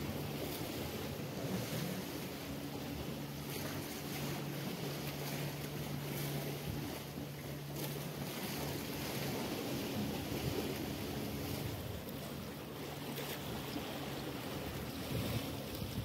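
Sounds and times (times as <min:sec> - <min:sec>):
low motor hum: 0:00.0 - 0:16.0
waves washing against rock: 0:00.0 - 0:16.0
wind on microphone: 0:08.9 - 0:12.1, 0:14.4 - 0:16.0.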